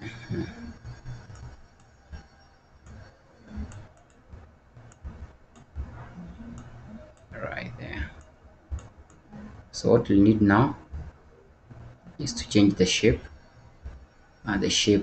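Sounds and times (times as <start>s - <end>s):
computer mouse clicking: 2.8s - 7.3s, 8.1s - 9.2s
soft low thuds: 3.6s - 14.2s.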